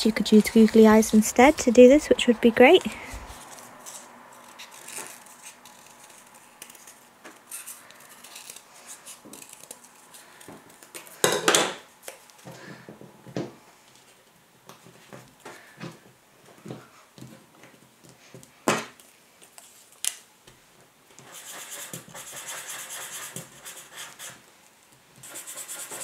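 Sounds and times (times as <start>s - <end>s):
paper handling: 3.1s - 11.2s
scissors snipping paper: 3.4s - 10.2s.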